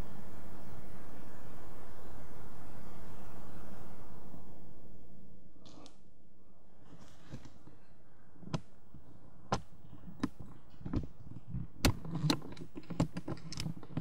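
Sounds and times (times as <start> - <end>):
faint steady hum: 0.0 - 14.0
sharp clicks and knocks: 9.5 - 14.0.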